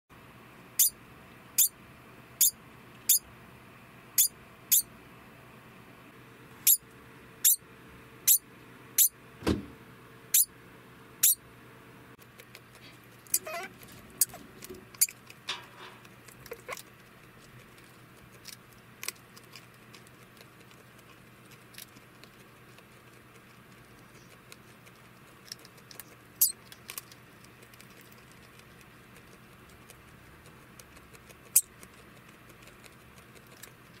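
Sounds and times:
degu alarm calls: 0:13.3 - 0:14.4.

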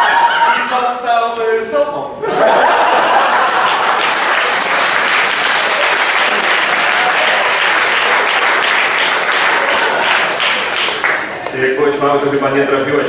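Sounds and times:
audience applauding: 0:02.5 - 0:11.6.

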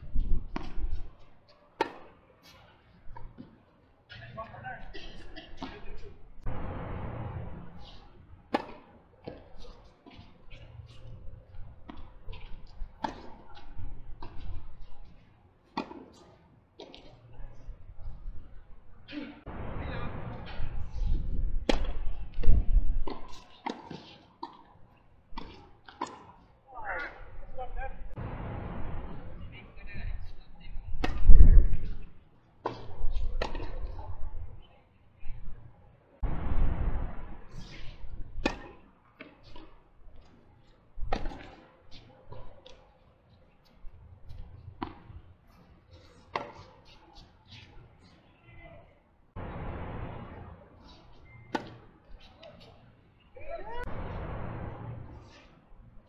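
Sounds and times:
tennis ball hits and bounces: 0:00.4 - 0:01.0, 0:01.8 - 0:03.6, 0:05.2 - 0:06.1, 0:07.8 - 0:10.8, 0:11.8 - 0:17.2, 0:21.6 - 0:27.2, 0:31.0 - 0:31.4, 0:32.6 - 0:34.1, 0:37.3 - 0:40.4, 0:41.0 - 0:42.9, 0:44.3 - 0:45.2, 0:46.0 - 0:47.7, 0:49.8 - 0:52.8
low rumble: 0:06.4 - 0:07.8, 0:19.5 - 0:22.3, 0:28.2 - 0:29.8, 0:36.2 - 0:37.5, 0:49.4 - 0:50.6, 0:53.9 - 0:55.2.

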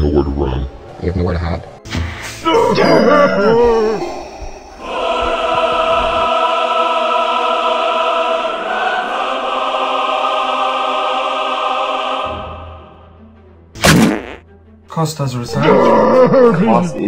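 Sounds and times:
choir holding sustained chord: 0:04.0 - 0:13.4.

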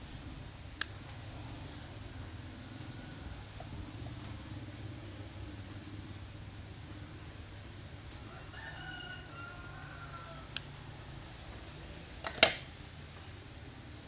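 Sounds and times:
faint rooster crow: 0:01.6 - 0:04.3, 0:08.0 - 0:10.9.

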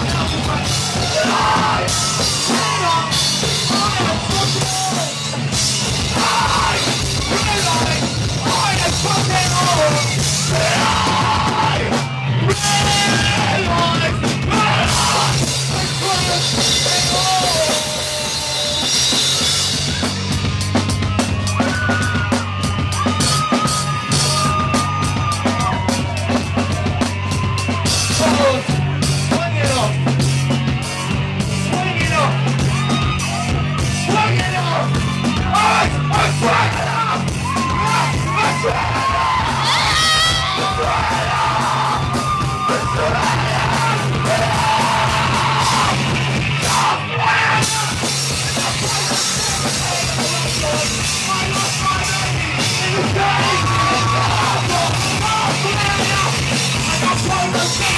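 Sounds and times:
singer shouting into microphone: 0:00.0 - 0:05.2, 0:06.1 - 0:18.8, 0:33.9 - 0:46.0, 0:46.6 - 0:57.9
drum kit with cymbals: 0:00.0 - 0:57.9.

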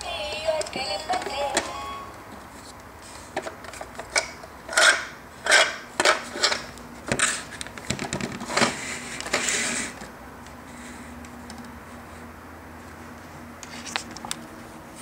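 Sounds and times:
plastic toy clattering and scraping: 0:03.3 - 0:10.0.

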